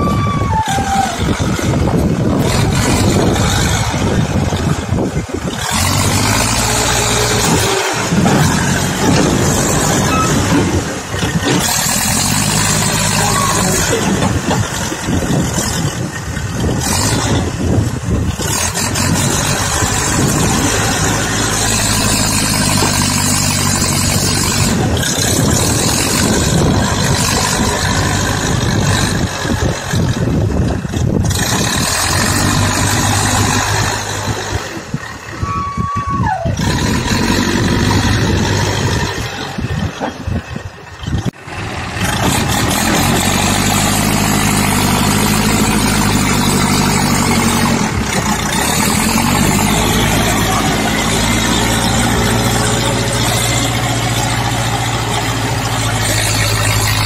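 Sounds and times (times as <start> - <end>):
diesel engine revving: 0.0 - 57.0.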